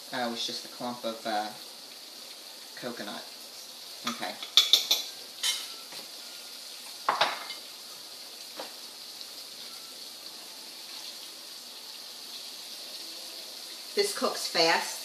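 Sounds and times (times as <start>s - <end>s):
shrimp sizzling in hot oil: 0.0s - 15.0s
kitchenware knocks: 7.1s - 7.6s.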